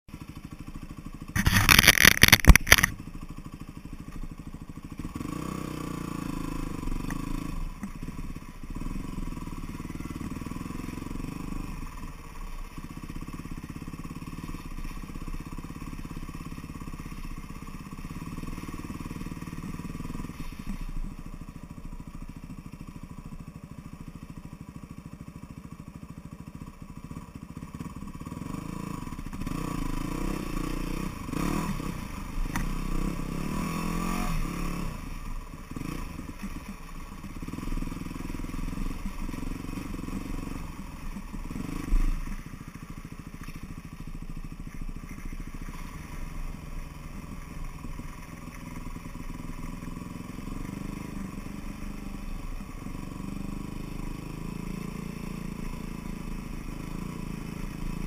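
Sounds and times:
vehicle engine running: 0:00.1 - 0:58.0
loud rattling burst: 0:01.4 - 0:03.0.

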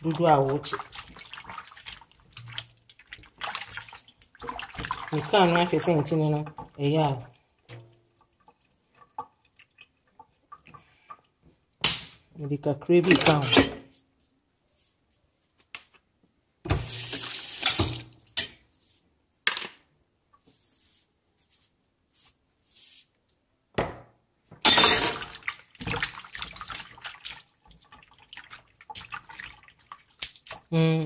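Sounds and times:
water splashing in a steel sink: 0:00.0 - 0:11.3, 0:24.8 - 0:31.0.

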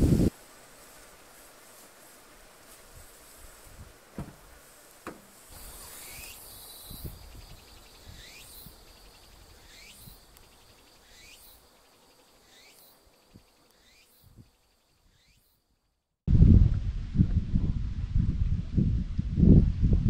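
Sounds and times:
low thumps: 0:04.2 - 0:05.4
downward sweeping insect call: 0:04.2 - 0:15.6
insects trilling: 0:04.2 - 0:15.7.

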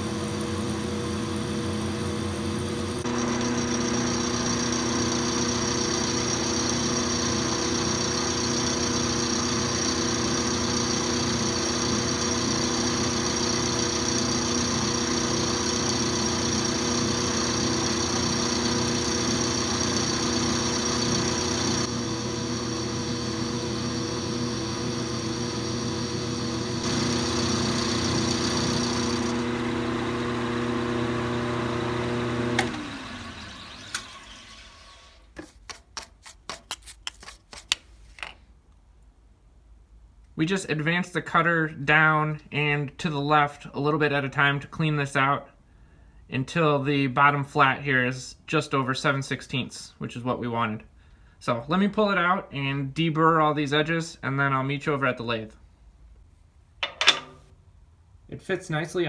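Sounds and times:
milling machine motor hum: 0:00.0 - 0:34.1
high cutting whine: 0:02.4 - 0:30.2.

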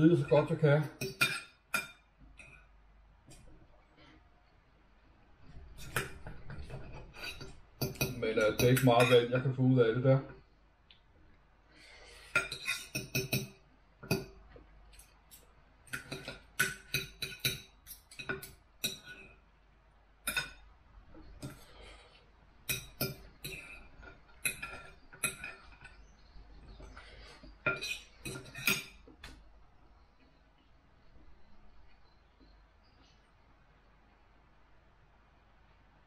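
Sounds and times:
knife and fork clinking on plate: 0:06.8 - 0:09.3, 0:27.7 - 0:29.0.

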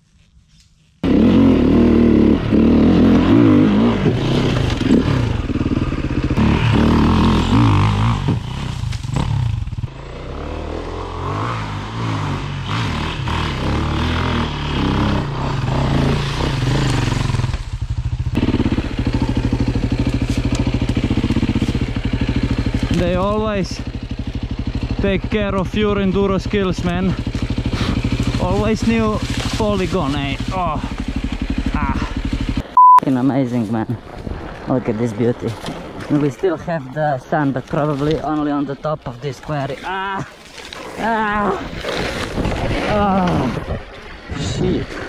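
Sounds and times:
motorcycle engine revving: 0:01.0 - 0:32.8.

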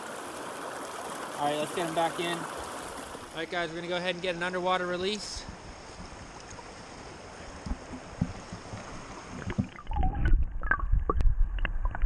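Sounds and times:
small stream hissing: 0:00.0 - 0:09.8
underwater clicks and gurgles: 0:05.5 - 0:12.0
underwater current rumble: 0:07.5 - 0:12.0.

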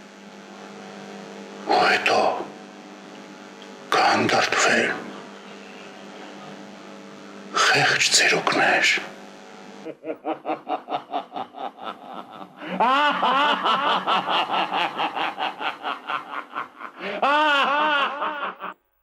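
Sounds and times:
man laughing: 0:09.8 - 0:18.8.

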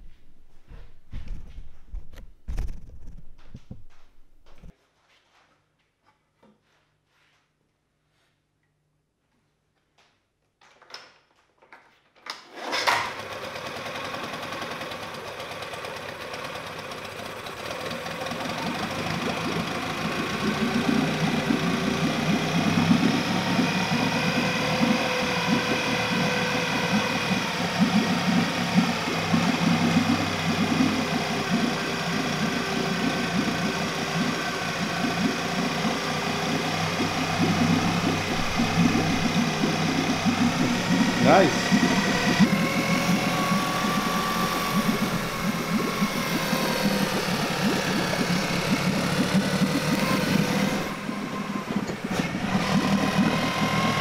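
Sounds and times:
pull cord starting: 0:12.2 - 0:54.0
outboard motor running: 0:12.6 - 0:54.0.

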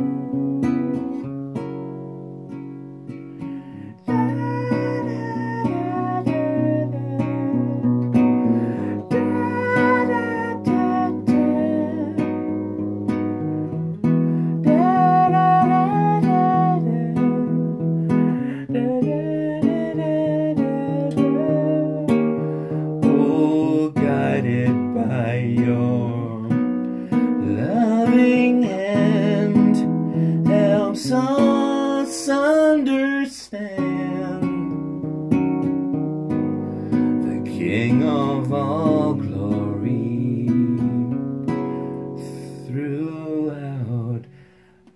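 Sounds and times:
acoustic guitar strumming chords: 0:00.0 - 0:44.9
wavering melody line: 0:04.1 - 0:12.3, 0:14.6 - 0:18.1.

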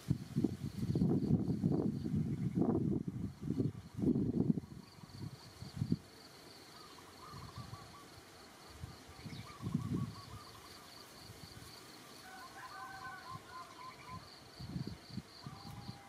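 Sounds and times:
warbling bird calls: 0:06.6 - 0:11.1, 0:12.0 - 0:16.0.

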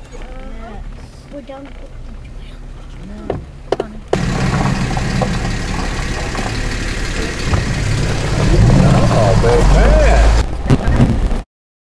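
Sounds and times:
tyre and road noise: 0:00.0 - 0:11.4
vehicle engine running: 0:04.2 - 0:10.4.

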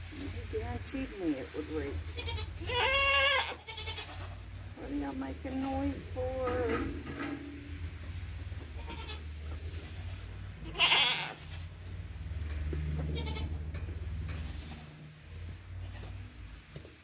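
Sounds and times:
low steady rumble: 0:00.0 - 0:17.0
goats bleating: 0:02.1 - 0:04.5, 0:08.8 - 0:09.4, 0:10.6 - 0:11.7, 0:13.0 - 0:13.6.

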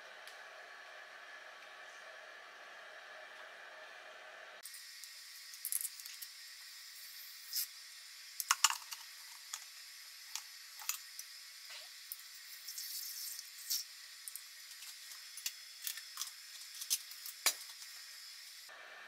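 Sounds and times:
faint fuel squirting hiss: 0:04.6 - 0:18.7.

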